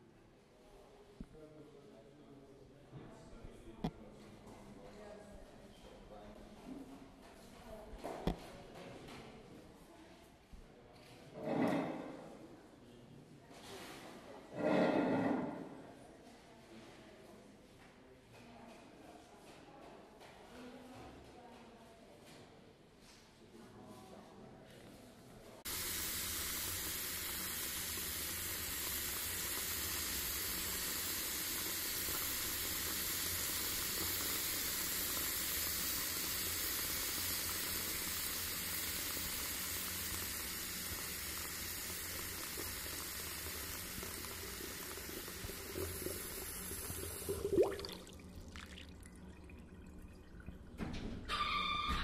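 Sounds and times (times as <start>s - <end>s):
running water rushing: 42.1s - 50.9s.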